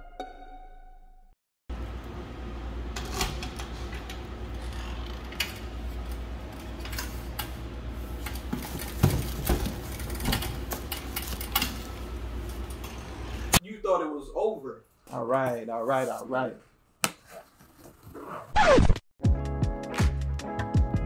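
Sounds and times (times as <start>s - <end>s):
packages knocking and rustling: 8.3s - 11.8s.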